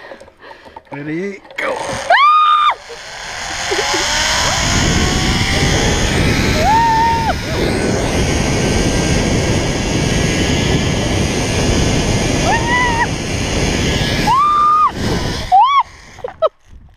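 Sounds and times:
trolley whine on cable: 1.9s - 16.4s
person whooping: 2.1s - 2.8s, 6.6s - 7.6s, 12.4s - 13.1s, 14.2s - 15.9s
wind rushing over microphone: 3.1s - 16.9s.

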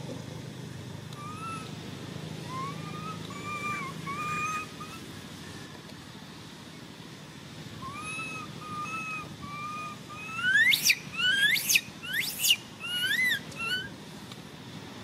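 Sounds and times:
baby macaque crying: 1.2s - 1.8s, 2.5s - 5.1s, 7.8s - 13.9s.

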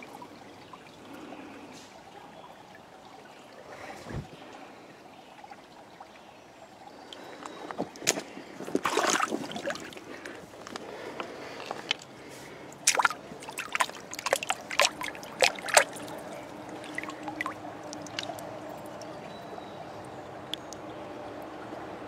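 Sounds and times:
stream trickling over rocks: 0.0s - 22.0s
hand splashing in water: 8.0s - 10.1s, 12.8s - 19.1s.

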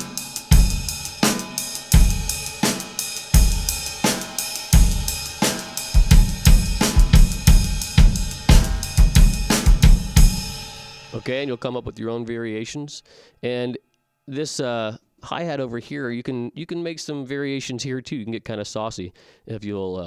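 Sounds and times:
snare drum backbeats: 0.0s - 10.8s
hi-hat: 0.0s - 11.4s
ride cymbal: 0.0s - 11.5s
bass drum kicks: 2.0s - 2.5s, 3.4s - 4.0s, 4.8s - 5.4s, 6.0s - 10.7s.

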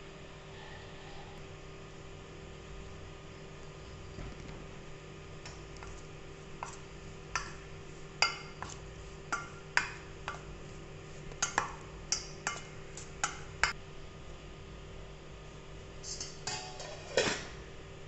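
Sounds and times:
faint steady hum: 0.0s - 18.0s
spoon clinking against metal bowl: 8.2s - 10.5s, 11.4s - 13.8s.

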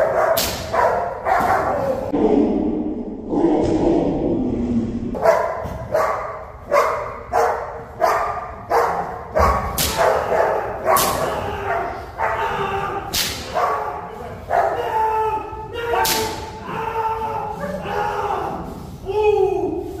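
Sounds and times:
dog barking: 0.0s - 2.0s, 5.2s - 12.5s, 13.5s - 14.8s
sharp cracks: 13.1s - 13.6s.

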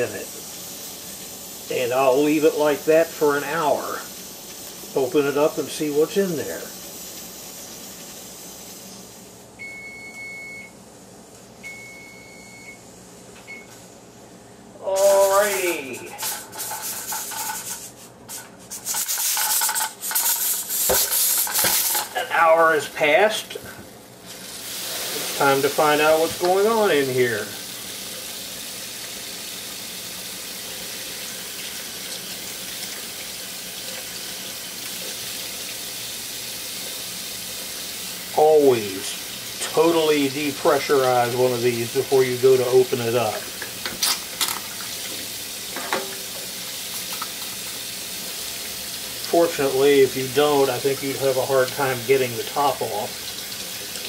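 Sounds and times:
hiss: 0.0s - 9.4s, 14.8s - 22.1s, 23.5s - 43.0s
kitchen timer beeping: 9.6s - 10.8s, 11.6s - 12.8s.

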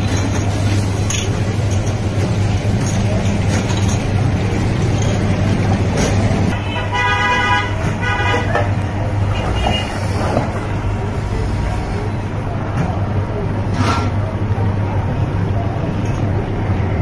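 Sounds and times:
busy street traffic: 0.0s - 17.0s
vehicle horn honking: 6.5s - 8.6s, 9.3s - 10.0s.

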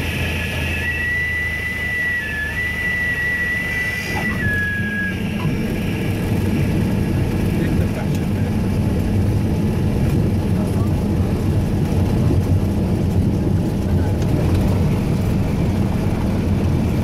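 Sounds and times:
stall warning horn whistling: 0.0s - 6.3s
piston aircraft engine drone: 0.0s - 17.0s.

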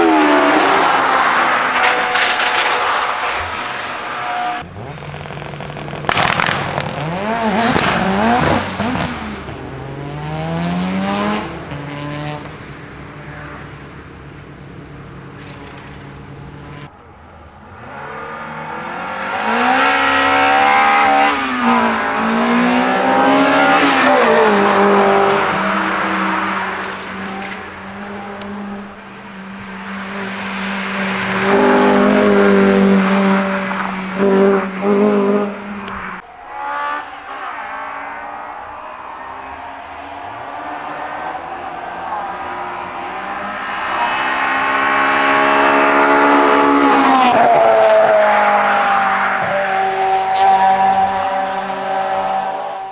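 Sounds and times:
engine revving: 0.0s - 12.6s, 17.7s - 38.7s
race car engines at full throttle: 0.0s - 52.9s.

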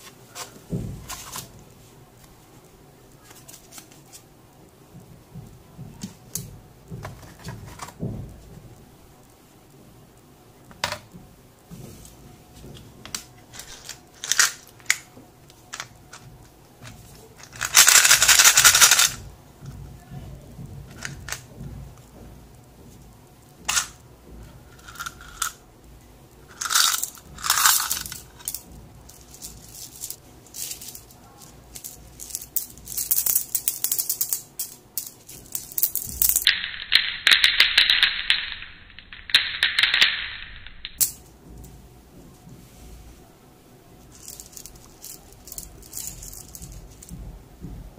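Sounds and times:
plastic blister cover crackling: 23.4s - 41.2s
steel bits clinking together: 26.5s - 36.5s.

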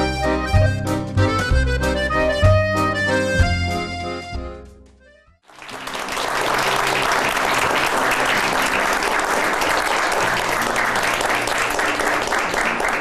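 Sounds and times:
studio audience applause: 5.5s - 13.0s.

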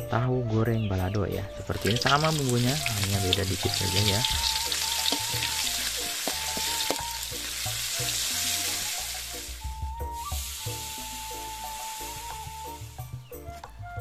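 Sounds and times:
background music: 0.0s - 14.0s
metal spatula stirring: 1.8s - 9.2s
chili paste sizzling in a wok: 1.8s - 13.4s.

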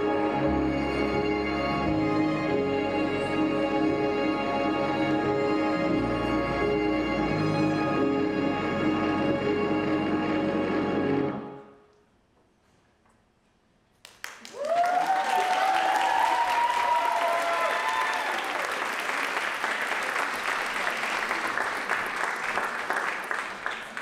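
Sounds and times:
audience applause: 14.1s - 24.0s
audience cheering and whoops: 14.5s - 18.9s.

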